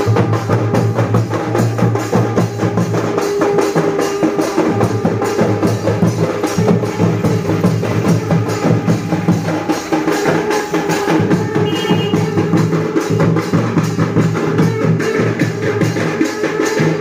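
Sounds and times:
conch shells blown in a drone: 0.0s - 13.4s
fast barrel drum beat: 0.0s - 17.0s.

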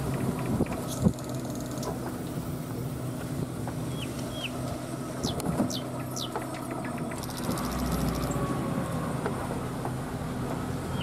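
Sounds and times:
vehicle engine humming: 0.0s - 11.0s
birds whistling: 3.9s - 4.6s, 5.2s - 8.4s.

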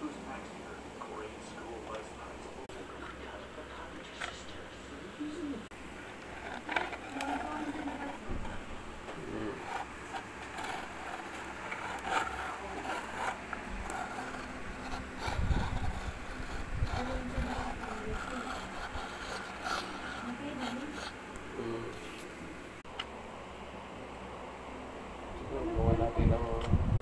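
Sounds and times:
wooden sharpener scraping and rattling: 6.0s - 21.2s.

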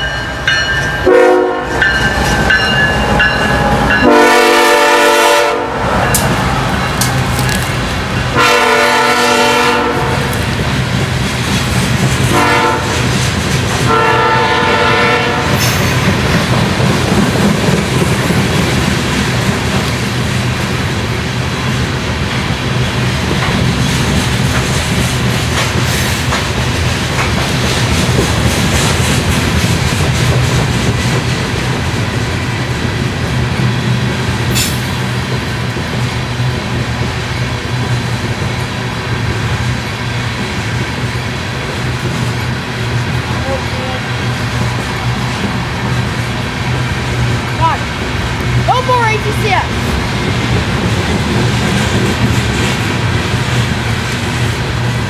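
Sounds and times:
freight cars rumbling on rails: 0.0s - 55.0s
train horn blasts: 1.0s - 2.0s, 3.9s - 5.8s, 8.3s - 10.4s, 12.3s - 13.1s, 13.9s - 15.8s.

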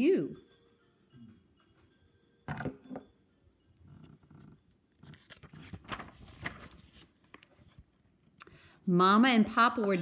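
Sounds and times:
book pages turning: 4.0s - 8.0s.

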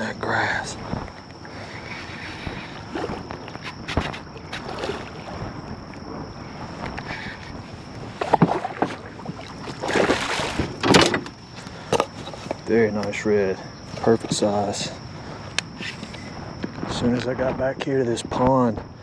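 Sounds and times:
wind on microphone: 0.0s - 19.0s
water sloshing: 0.8s - 12.7s
fish splashing and thrashing: 1.1s - 12.6s.

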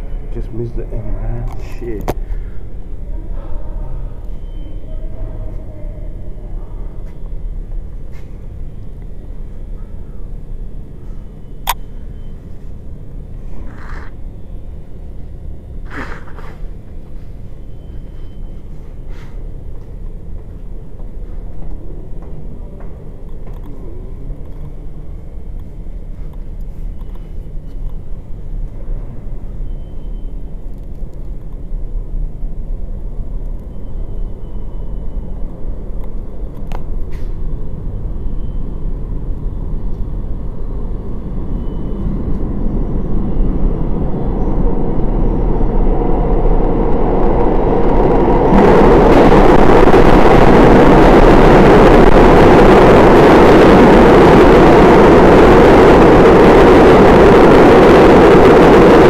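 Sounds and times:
subway train rumbling: 0.0s - 59.0s
wheel and track noise: 13.4s - 14.2s, 38.8s - 59.0s.

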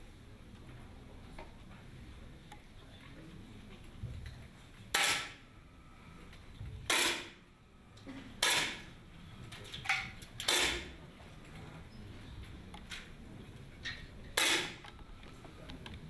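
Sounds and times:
air rifle shots: 6.9s - 7.4s, 8.4s - 8.8s, 10.4s - 10.9s, 14.4s - 14.8s.

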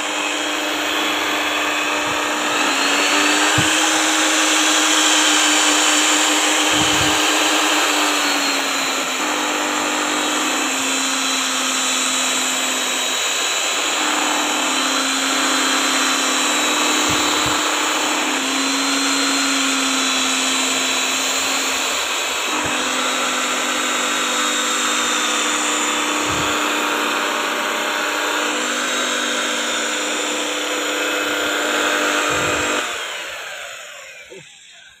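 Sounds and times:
electric mixer motor hum: 0.0s - 35.0s.

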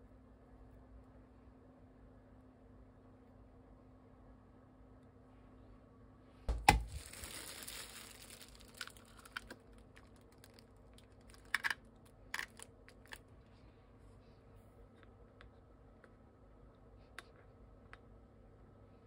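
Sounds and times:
plastic gloves crinkling: 6.5s - 11.8s, 12.4s - 13.2s
eggshell cracking: 6.5s - 13.2s.

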